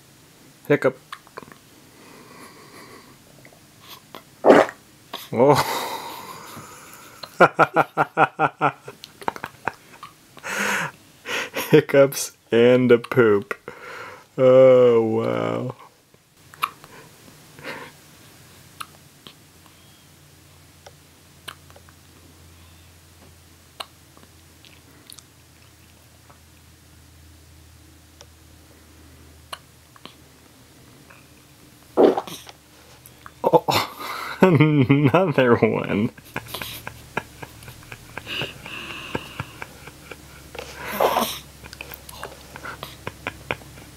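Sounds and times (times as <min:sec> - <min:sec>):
low steady hum: 0:00.0 - 0:43.9
baby hiccuping: 0:04.4 - 0:04.8, 0:32.0 - 0:32.5
baby mouth clicks: 0:16.5 - 0:16.8, 0:23.8 - 0:24.0, 0:29.5 - 0:30.2.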